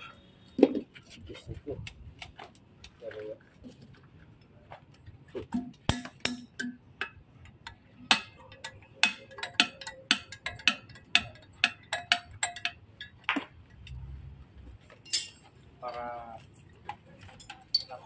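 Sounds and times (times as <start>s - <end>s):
tool tapping on metal: 5.4s - 13.9s.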